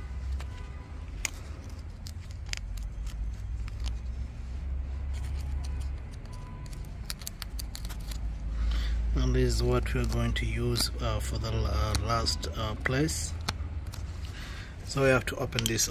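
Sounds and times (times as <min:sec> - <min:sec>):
metal pick clicking and scraping: 0:05.1 - 0:08.3.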